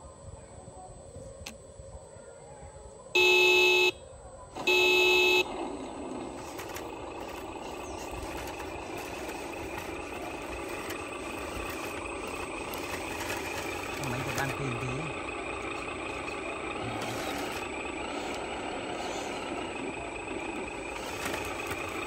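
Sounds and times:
toy truck horn toots: 3.2s - 4.0s, 4.6s - 5.6s, 6.3s - 22.0s
mechanical running sound: 4.6s - 22.0s.

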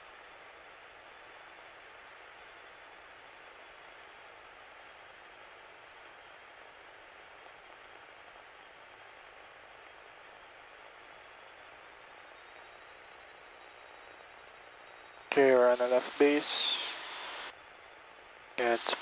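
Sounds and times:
steady hiss: 15.3s - 17.6s, 18.6s - 19.0s.

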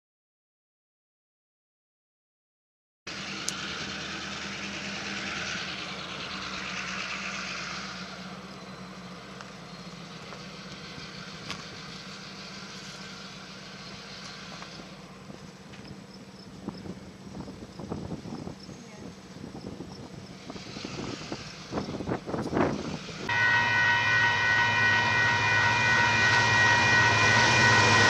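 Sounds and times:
engine hum: 3.1s - 28.0s
rushing noise: 20.3s - 28.0s.

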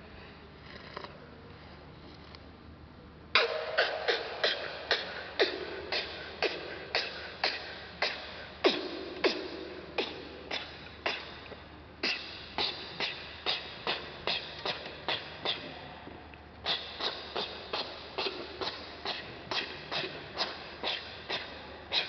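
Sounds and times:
sharp percussive strikes: 3.4s - 11.4s.

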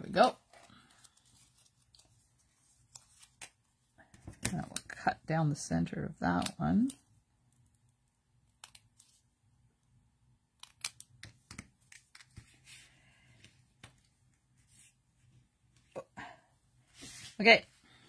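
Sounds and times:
paper rustle: 0.5s - 3.6s.

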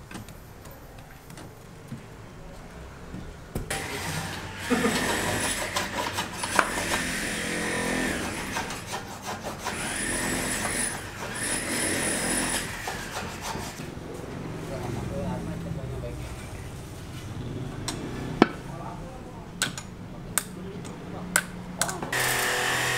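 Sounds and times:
hand saw cutting concrete block: 3.7s - 13.8s, 22.1s - 22.9s.

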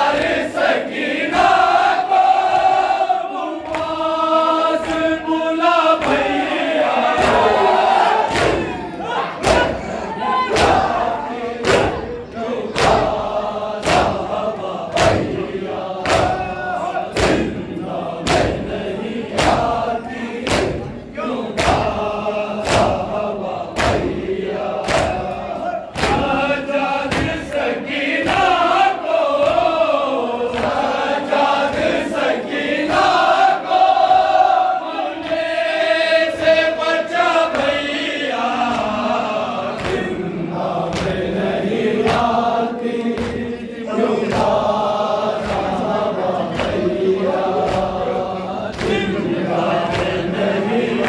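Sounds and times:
men chanting together: 0.0s - 51.0s
hands slapping chests: 3.6s - 5.2s, 5.9s - 6.4s, 8.2s - 9.9s, 10.5s - 11.0s, 11.6s - 12.1s, 12.7s - 17.6s, 18.2s - 18.7s, 19.3s - 19.8s, 20.4s - 28.6s, 30.5s - 30.9s, 38.6s - 40.2s, 40.8s - 42.4s, 44.3s - 48.1s, 48.7s - 50.3s.

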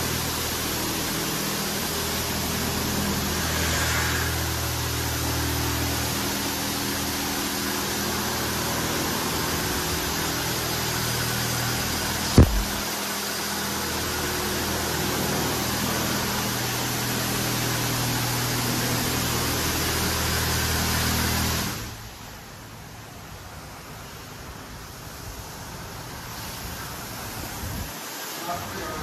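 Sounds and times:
pump humming: 0.0s - 20.7s
car wash water spray hissing: 0.0s - 29.0s
sharp knock: 12.4s - 12.8s.

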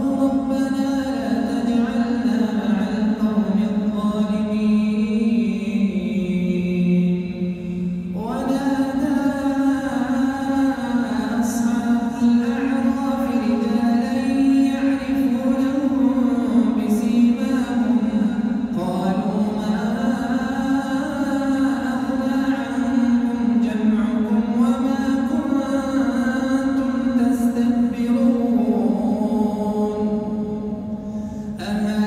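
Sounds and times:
man reciting melodically: 0.0s - 32.0s.

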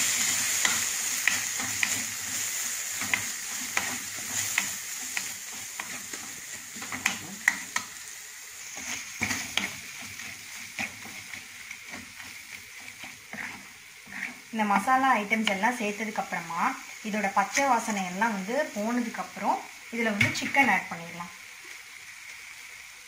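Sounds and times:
wooden spatula scraping a pan: 0.0s - 7.9s, 8.6s - 16.1s
food sizzling in oil: 0.0s - 23.0s.

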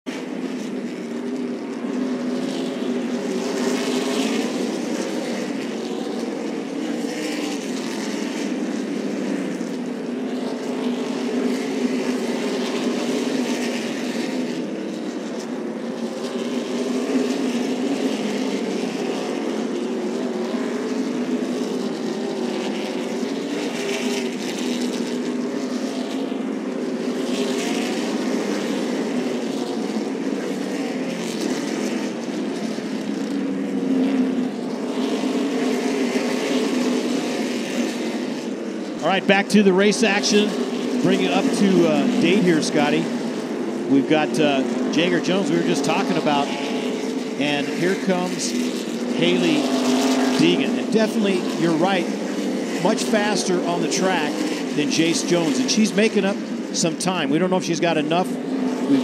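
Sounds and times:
race car engines at speed: 0.0s - 59.0s.

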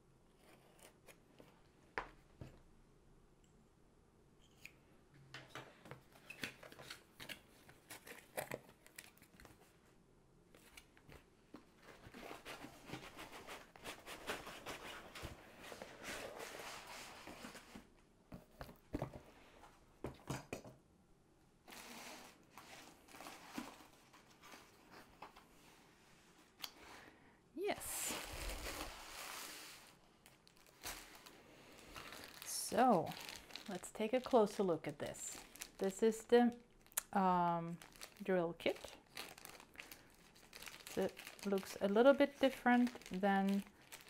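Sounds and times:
paper rustling and crinkling: 10.6s - 19.2s, 21.7s - 25.5s, 27.8s - 36.1s, 37.8s - 44.0s.

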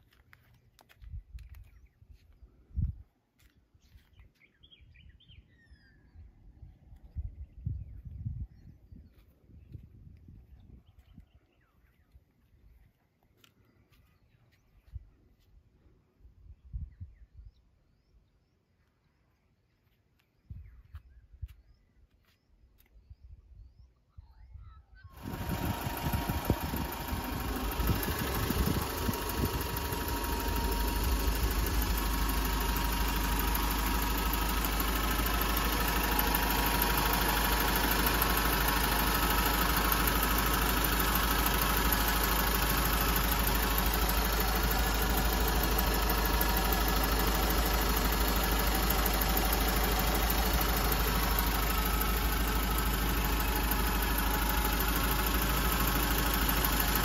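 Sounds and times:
engine idling close up: 25.1s - 57.0s.

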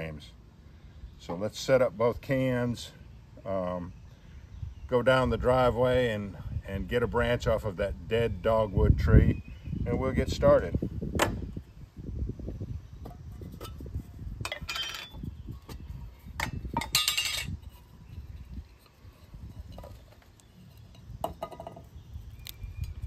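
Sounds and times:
metal tins clinking: 14.4s - 15.2s, 16.8s - 17.6s.

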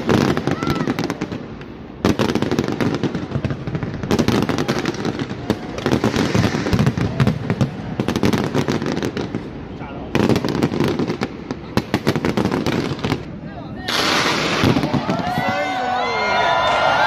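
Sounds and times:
fireworks bangs and crackles: 0.0s - 17.0s.

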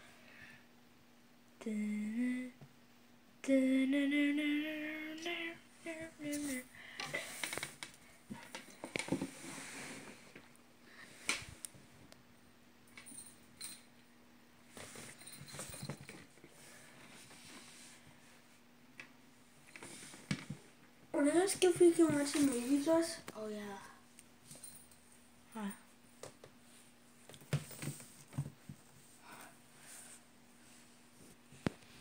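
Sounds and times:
person humming a tune: 1.6s - 2.6s, 3.4s - 7.2s
rustling and scuffing on blanket: 6.2s - 6.7s, 21.8s - 23.2s.

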